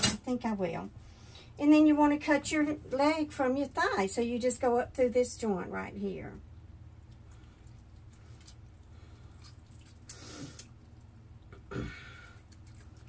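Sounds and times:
low steady hum: 0:00.0 - 0:13.0
person breathing: 0:11.8 - 0:12.5.

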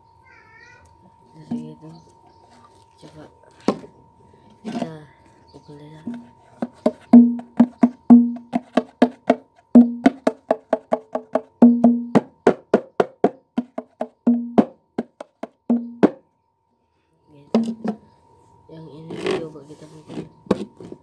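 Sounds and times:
hand drum struck rapidly: 0:06.1 - 0:16.2.

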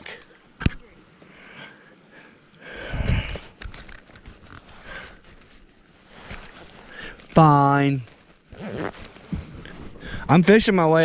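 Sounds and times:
paddle water swishes: 0:04.7 - 0:08.5.

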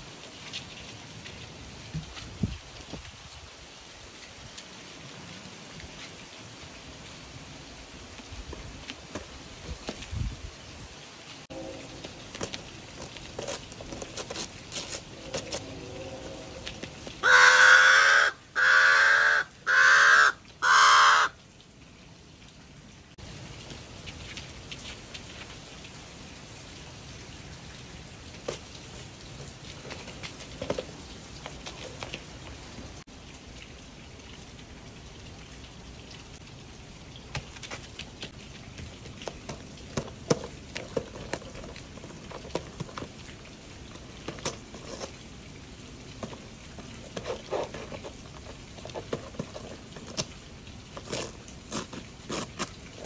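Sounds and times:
light rain hiss: 0:00.0 - 0:53.0
wrapping paper crinkling: 0:12.4 - 0:15.7.

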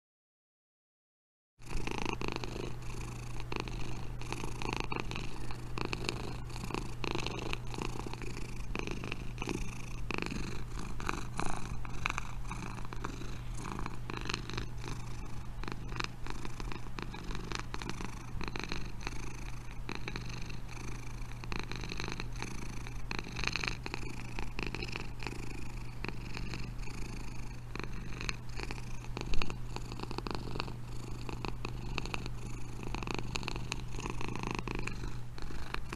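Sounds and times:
cat purring: 0:01.6 - 0:35.9.

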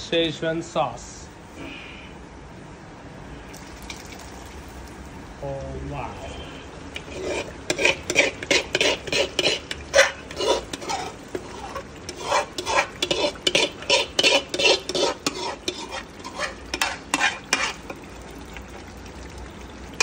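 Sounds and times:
paste sizzling in oil: 0:06.4 - 0:20.0
spoon scraping metal pans: 0:07.0 - 0:18.1.

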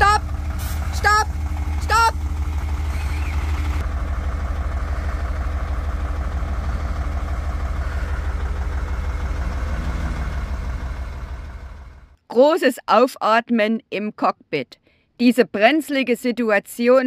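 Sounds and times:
diesel engine idling: 0:00.0 - 0:12.2.

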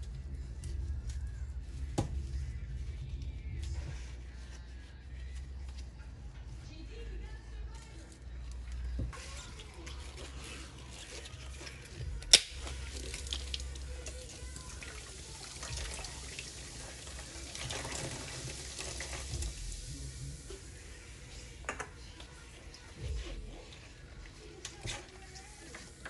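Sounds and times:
tap water running into sink: 0:12.3 - 0:20.5.

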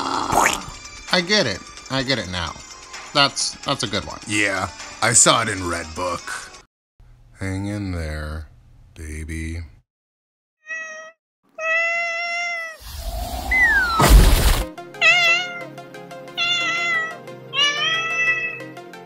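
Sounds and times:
kitten meowing: 0:10.6 - 0:12.8, 0:15.0 - 0:15.7, 0:16.4 - 0:18.7
rushing noise with falling whistle: 0:12.8 - 0:14.0
loud burst: 0:12.8 - 0:14.7.

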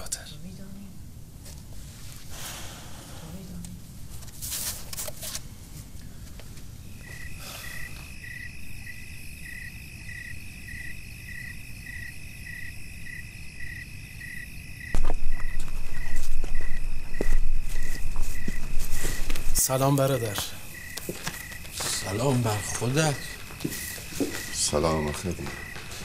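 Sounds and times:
crickets chirping: 0:03.8 - 0:26.0.

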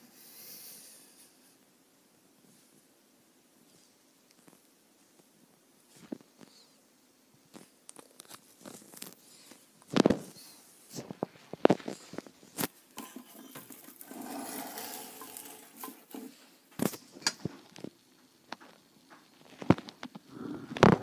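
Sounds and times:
rustling: 0:07.5 - 0:21.0.

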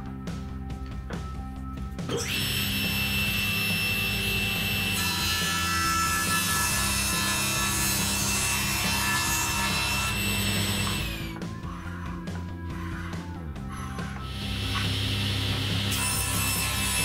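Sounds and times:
table saw whining: 0:02.0 - 0:17.0
saw blade cutting wood: 0:02.1 - 0:17.0
saw winding down: 0:02.1 - 0:17.0.

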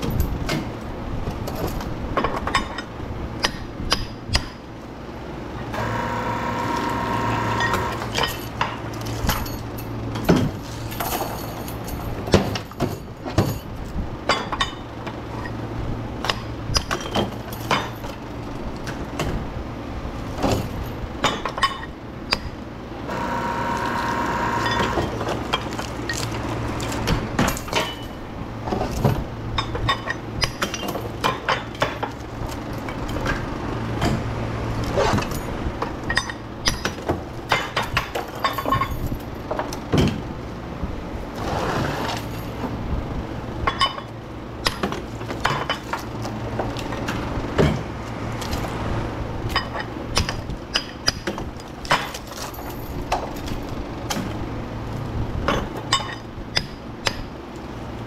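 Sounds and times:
steady low hum: 0:00.0 - 0:58.0
metal parts clinking: 0:07.6 - 0:14.8, 0:23.8 - 0:28.2, 0:37.5 - 0:39.7, 0:49.4 - 0:53.7, 0:55.5 - 0:56.7.

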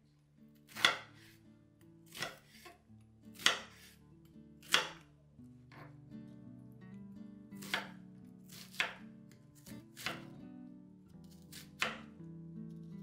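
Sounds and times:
soft background music: 0:00.2 - 0:13.0
knife slicing onion on board: 0:00.6 - 0:01.4, 0:02.1 - 0:04.0, 0:04.6 - 0:05.0, 0:07.6 - 0:10.3, 0:11.2 - 0:13.0.

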